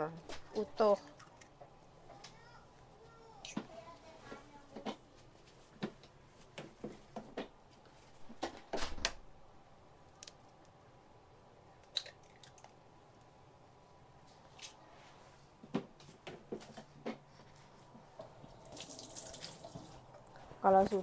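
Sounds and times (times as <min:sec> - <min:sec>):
egg cracking open: 0:10.1 - 0:10.8, 0:11.8 - 0:12.8.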